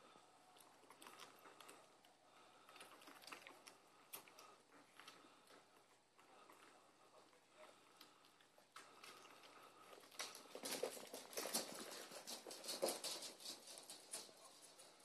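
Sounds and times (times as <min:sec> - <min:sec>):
puppy claws pattering on floor: 0:08.0 - 0:15.0.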